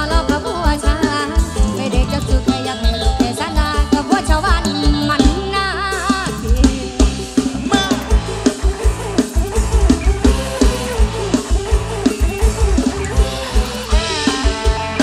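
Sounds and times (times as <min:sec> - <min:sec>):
bass: 0:00.0 - 0:15.0
drum kit beat: 0:00.0 - 0:15.0.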